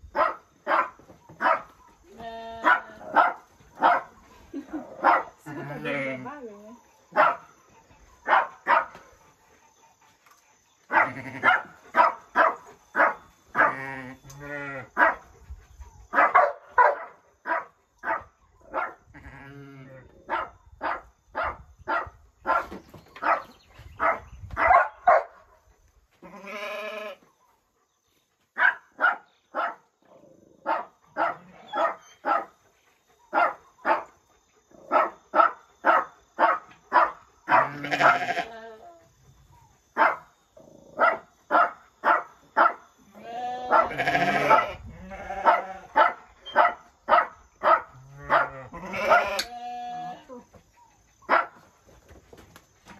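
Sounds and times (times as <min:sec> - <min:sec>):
dog barking: 0:00.2 - 0:01.7, 0:02.6 - 0:04.2, 0:05.0 - 0:05.4, 0:07.1 - 0:07.6, 0:08.2 - 0:09.1, 0:10.9 - 0:13.8, 0:15.0 - 0:15.3, 0:16.1 - 0:19.0, 0:20.3 - 0:25.6, 0:28.6 - 0:29.9, 0:30.6 - 0:32.6, 0:33.3 - 0:34.2, 0:34.8 - 0:38.4, 0:39.9 - 0:42.9, 0:43.6 - 0:49.4, 0:51.2 - 0:51.6
sheep bleating: 0:02.1 - 0:02.9, 0:05.5 - 0:06.3, 0:11.0 - 0:11.5, 0:26.2 - 0:27.2, 0:37.6 - 0:38.8, 0:43.2 - 0:45.9, 0:48.1 - 0:50.3.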